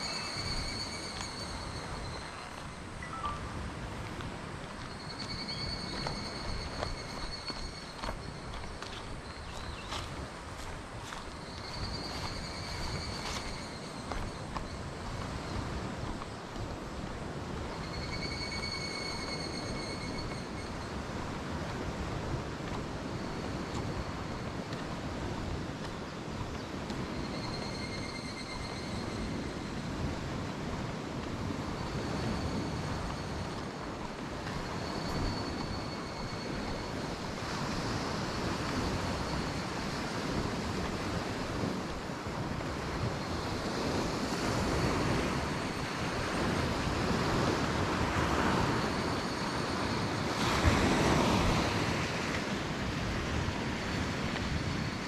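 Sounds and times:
faint high-pitched call: 0.0s - 3.6s
wind buffeting microphone: 0.0s - 55.0s
sea waves washing onto shore: 28.6s - 55.0s.

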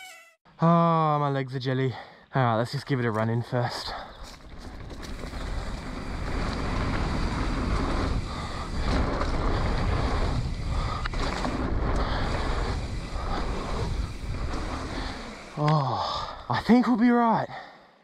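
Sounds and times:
wind rushing over microphone: 4.5s - 15.5s.

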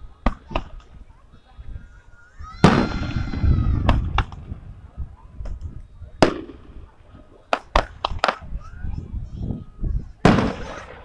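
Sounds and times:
fireworks crackling: 0.0s - 11.0s
fireworks bangs: 2.5s - 9.0s, 9.8s - 11.0s.

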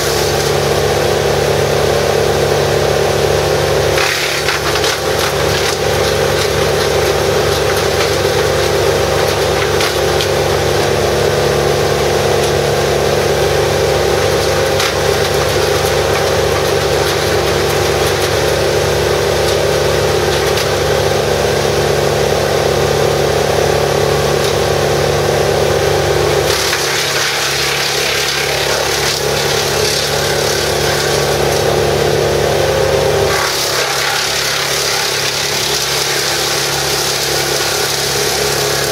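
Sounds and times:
chipper engine drone: 0.0s - 38.9s
wood crackling and splintering: 3.7s - 11.4s, 13.3s - 21.0s, 26.3s - 32.5s, 33.2s - 38.9s.

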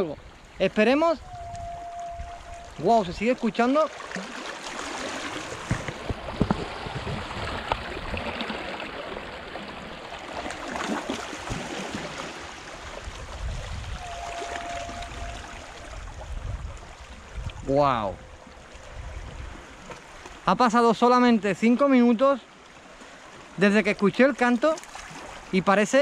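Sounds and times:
small waves lapping on rocks: 3.2s - 17.6s, 21.9s - 26.0s
steady tone: 14.0s - 16.0s.

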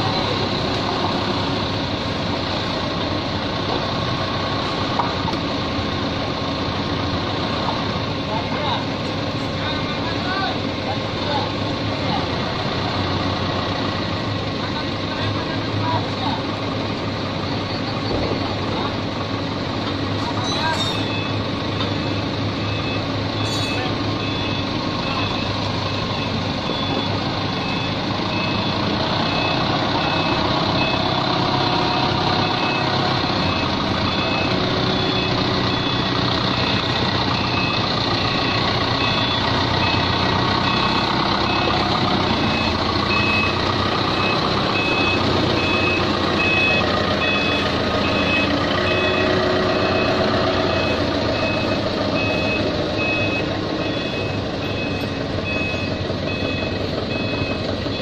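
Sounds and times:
forklift engine running: 0.0s - 58.0s
reversing alarm beeping: 20.4s - 58.0s.

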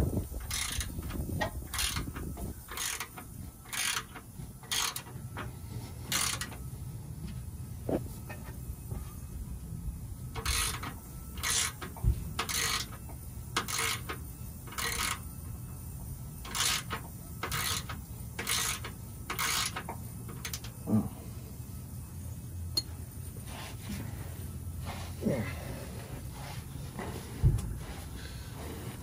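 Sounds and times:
ratchet wrench clicking: 0.4s - 5.2s, 6.1s - 6.6s, 10.3s - 15.4s, 16.4s - 20.8s.

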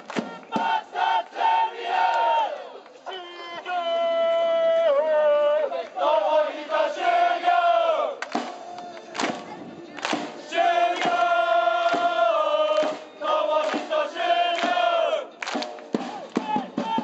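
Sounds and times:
hand claps: 0.0s - 0.5s, 8.2s - 14.8s, 15.4s - 16.5s
crowd chanting: 0.0s - 17.0s.

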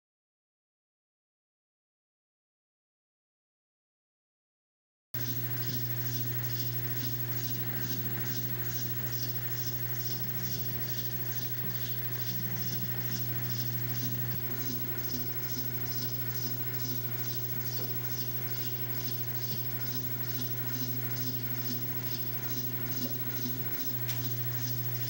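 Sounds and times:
electric motor humming: 5.2s - 25.0s
faint mechanical ticking: 5.2s - 25.0s.

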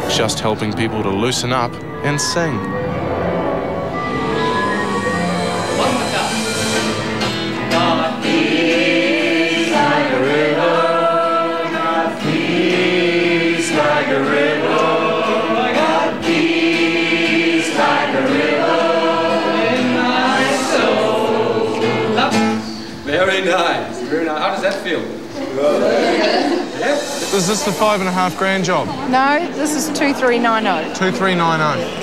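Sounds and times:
group singing in chorus: 1.8s - 23.0s, 25.2s - 28.1s.

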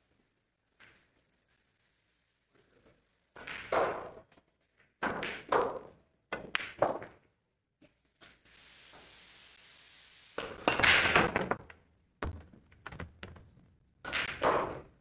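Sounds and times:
pool balls clacking: 3.4s - 4.3s, 5.0s - 7.3s, 10.4s - 15.0s.

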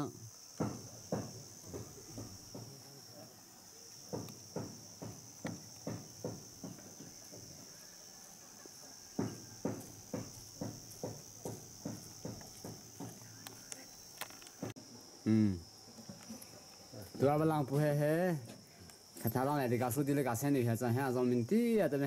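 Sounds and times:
insects droning: 0.0s - 22.0s
footsteps on ground: 9.6s - 14.8s.

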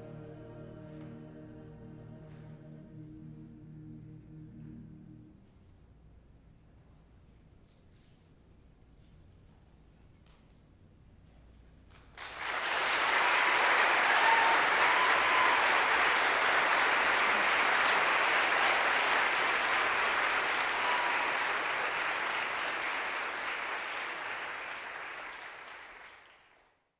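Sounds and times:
audience applauding: 12.2s - 26.8s.

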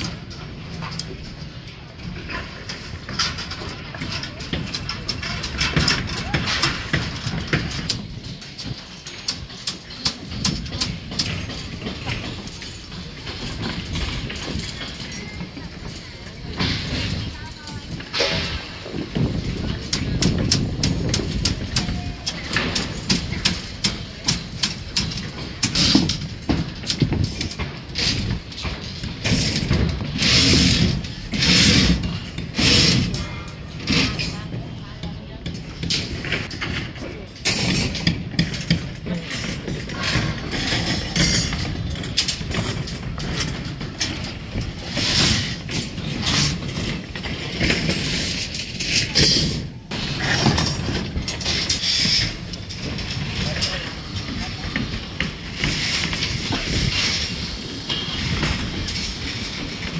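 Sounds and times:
metallic clicks of rebar tying: 0.0s - 16.0s
steel bars clattering and clanking: 0.0s - 59.9s.

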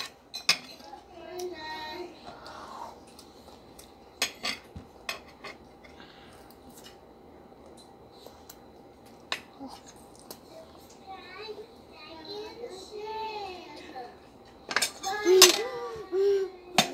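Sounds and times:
cutlery clinking on plates: 0.0s - 0.9s, 4.2s - 5.6s.

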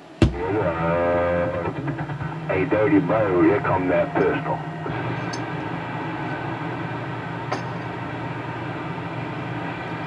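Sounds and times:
radio static hiss: 0.0s - 7.0s
low hum: 0.0s - 10.0s.

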